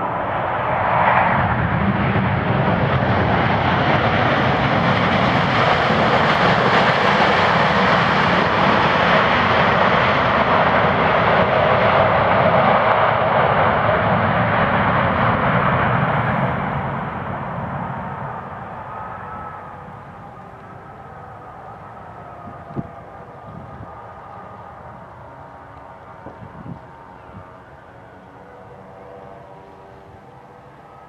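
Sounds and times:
jet engine noise: 0:00.0 - 0:31.0.

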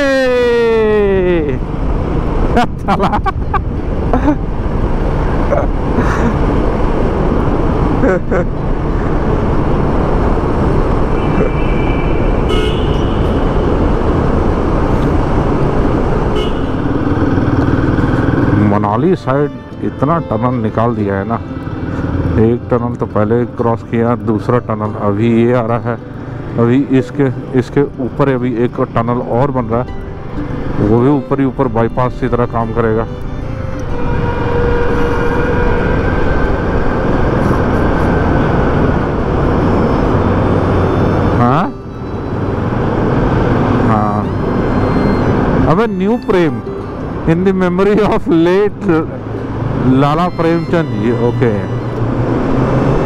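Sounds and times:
road and wind noise: 0:00.0 - 0:53.0
traffic: 0:00.0 - 0:53.0
short horn toots: 0:11.2 - 0:13.7, 0:16.3 - 0:17.0, 0:33.9 - 0:36.4
motorcycle engine riding: 0:12.4 - 0:19.3
motorcycle engine running: 0:15.5 - 0:18.8.

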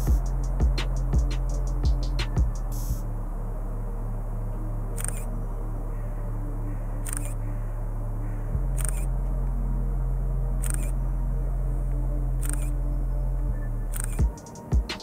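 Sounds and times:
low steady drone: 0:00.0 - 0:15.0.

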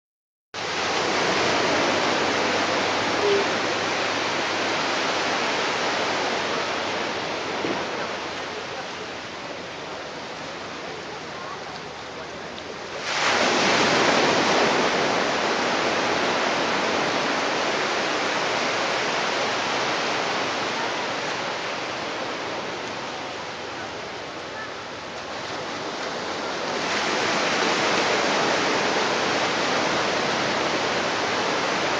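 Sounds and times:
wave breaking: 0:00.6 - 0:31.9
waves washing on beach: 0:00.6 - 0:31.9.

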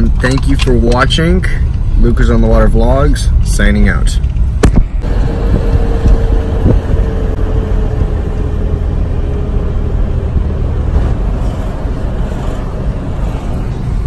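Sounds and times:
road and wind rumble in car: 0:00.0 - 0:14.0
faint hum dropping in pitch: 0:04.6 - 0:11.5.

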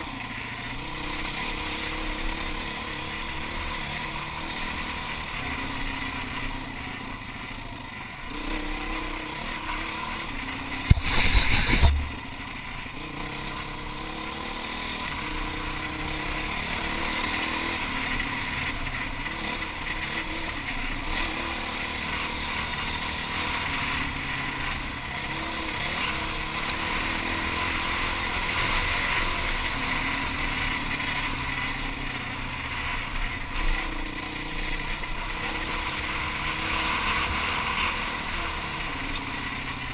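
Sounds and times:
motorcycle engine running: 0:00.0 - 0:39.9
wind noise on microphone: 0:10.9 - 0:12.1.

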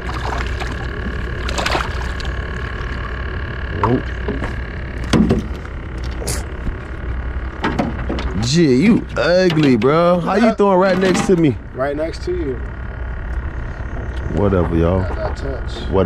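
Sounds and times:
fish splashing at water surface: 0:00.0 - 0:03.2
steady hum: 0:00.0 - 0:16.0.

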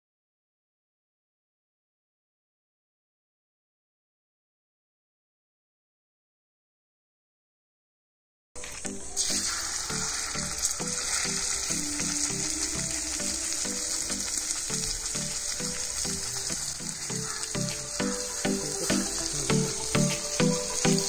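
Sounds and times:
background music: 0:08.6 - 0:21.0
chicken frying in hot oil: 0:08.6 - 0:21.0.

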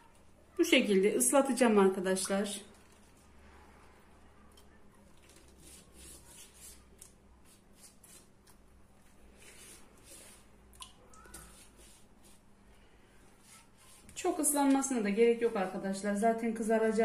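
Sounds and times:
pastry brush rubbing on dough: 0:05.2 - 0:10.7, 0:11.3 - 0:16.0.

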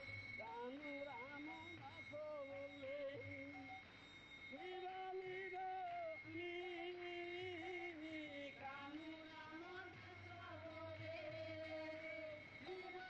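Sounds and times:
voice singing long held notes: 0:04.5 - 0:13.0.

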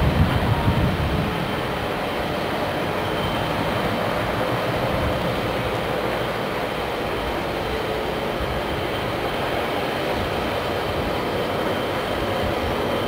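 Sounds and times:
diesel locomotive running: 0:00.0 - 0:13.0.

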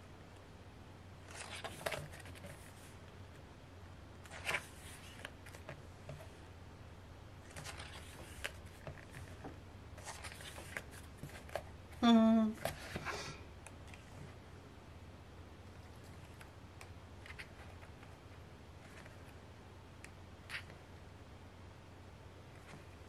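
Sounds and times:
faint low hum: 0:00.0 - 0:23.0
book pages being turned: 0:01.2 - 0:03.0, 0:04.2 - 0:06.3, 0:07.4 - 0:11.7, 0:18.8 - 0:19.4.

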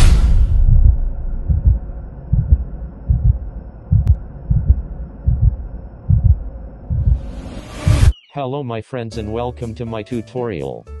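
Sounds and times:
whoosh: 0:00.0 - 0:02.5, 0:06.9 - 0:08.2
faint hum: 0:00.0 - 0:08.0
deep heartbeat thumps: 0:00.0 - 0:08.1.

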